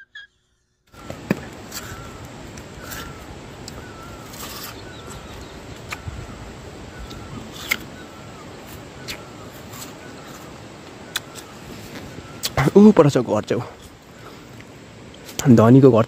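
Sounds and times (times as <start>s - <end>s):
bird calling: 0.0s - 14.8s
chewing crunchy pear: 7.0s - 8.0s, 11.1s - 11.5s.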